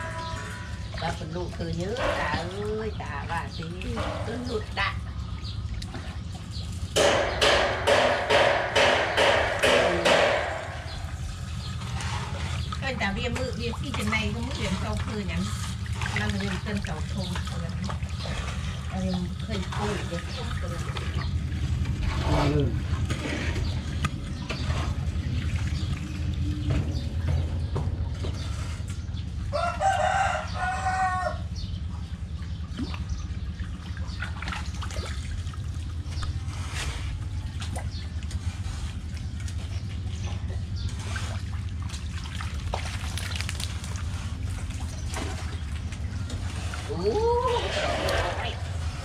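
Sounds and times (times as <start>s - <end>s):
knocks and splashes in water: 0.0s - 49.0s
steady low rumble: 0.0s - 49.0s
rooster crowing: 29.5s - 31.5s.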